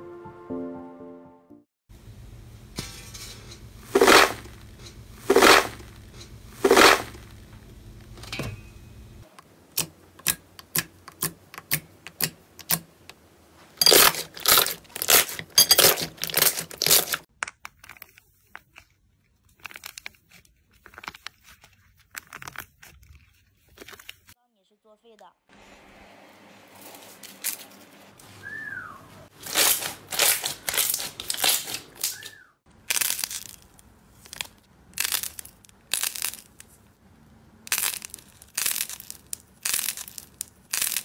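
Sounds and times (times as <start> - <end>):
dried clay crackling: 2.6 - 8.2, 9.2 - 24.4, 26.8 - 37.0, 37.6 - 41.0
slime squishing: 14.1 - 24.3.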